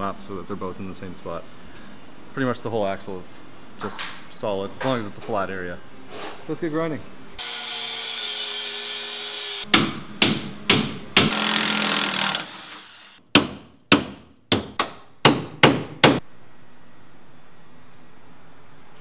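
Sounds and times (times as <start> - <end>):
angle grinder cutting metal: 7.4 - 9.7.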